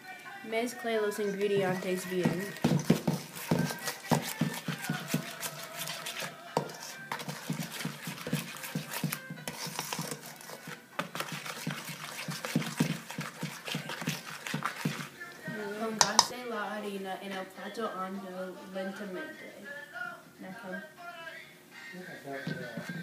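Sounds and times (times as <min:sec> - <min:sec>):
spatula scraping metal bowl: 0:01.2 - 0:16.3, 0:22.3 - 0:23.0.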